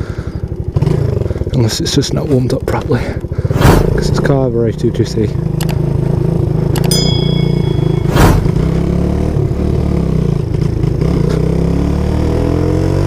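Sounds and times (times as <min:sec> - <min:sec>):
motorcycle engine running: 0:00.0 - 0:12.2
chime ringing: 0:06.9 - 0:09.3.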